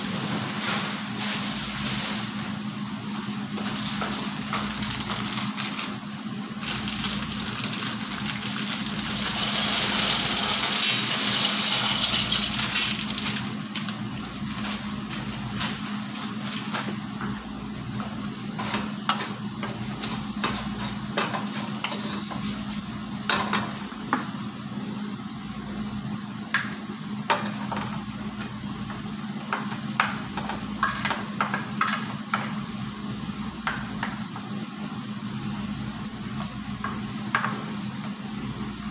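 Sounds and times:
meat sizzling in a frying pan: 6.7s - 13.6s
steady low hum: 11.9s - 38.9s.

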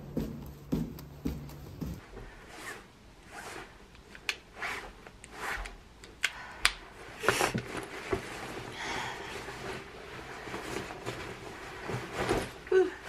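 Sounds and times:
nylon coat rustling: 7.7s - 13.0s.

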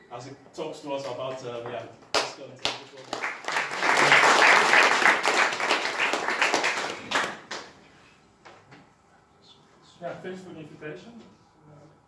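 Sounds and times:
audience applauding: 2.6s - 7.8s.

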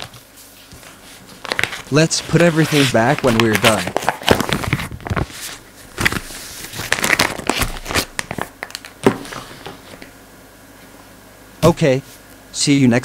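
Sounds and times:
plastic packaging crinkling: 0.0s - 10.1s.

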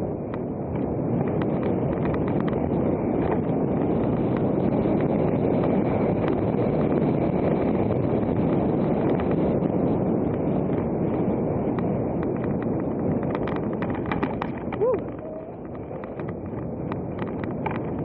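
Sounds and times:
bike tyres rumbling on dirt: 0.0s - 18.0s
wind buffeting microphone: 0.0s - 18.0s
sharp clicks and rattles: 11.7s - 18.0s.

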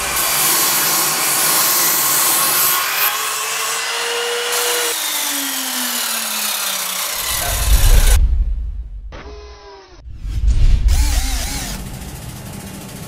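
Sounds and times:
mitre saw cutting wood: 0.0s - 8.2s.

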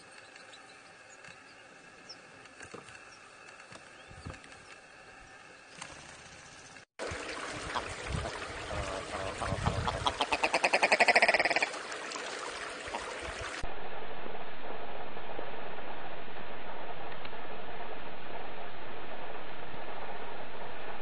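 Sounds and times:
ptarmigan rattling call: 8.9s - 11.7s.

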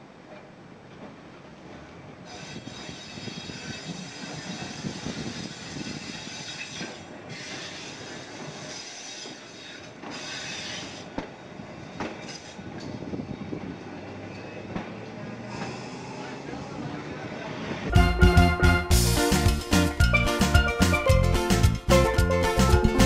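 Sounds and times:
streetcar rumble: 0.0s - 23.0s
streetcar wheels squealing: 2.2s - 17.9s.

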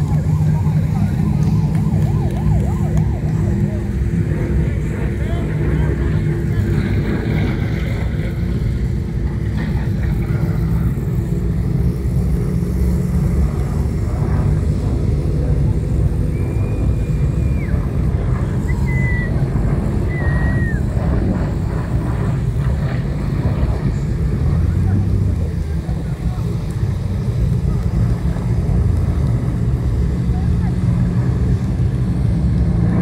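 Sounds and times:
car engine and road rumble: 0.0s - 33.0s
high whistling tones: 16.2s - 21.0s.

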